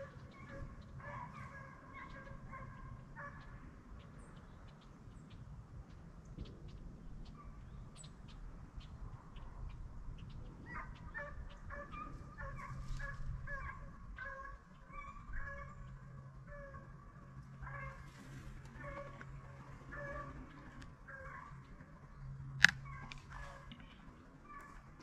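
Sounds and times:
distant hounds baying: 0.0s - 4.1s, 9.3s - 25.0s.

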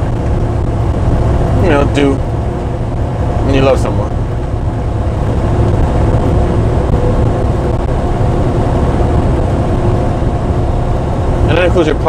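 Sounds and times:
truck engine rumbling: 0.0s - 12.0s.

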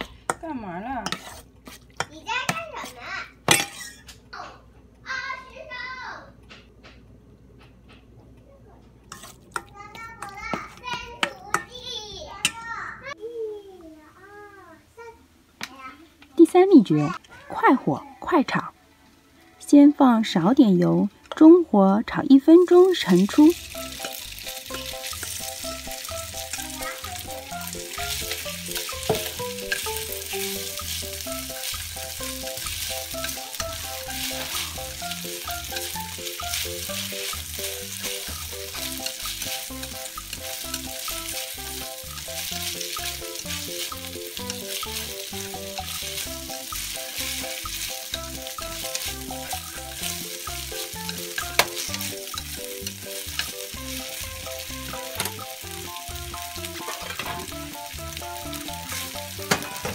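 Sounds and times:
soft background music: 16.4s - 59.9s
beef sizzling in a frying pan: 22.4s - 59.9s.

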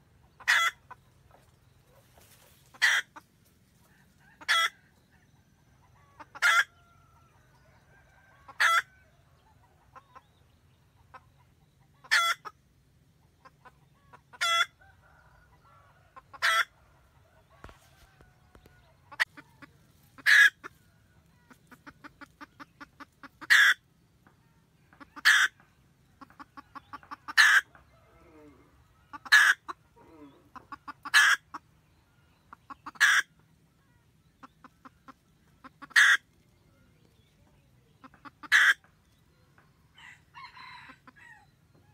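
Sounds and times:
hen cackling: 0.2s - 1.4s, 2.2s - 5.0s, 5.8s - 7.2s, 8.2s - 9.0s, 11.0s - 12.6s, 13.3s - 16.8s, 17.5s - 23.9s, 24.6s - 31.8s, 32.5s - 36.4s, 37.9s - 39.0s.

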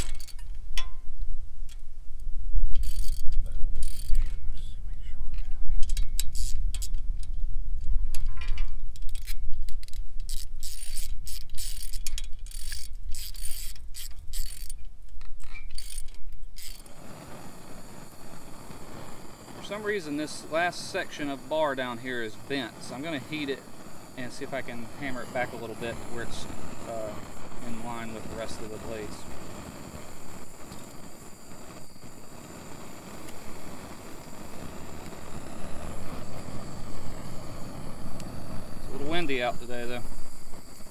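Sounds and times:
socket ratchet clicking: 5.9s - 7.0s, 9.0s - 16.9s
gas torch hissing: 10.3s - 14.7s, 16.6s - 40.9s.

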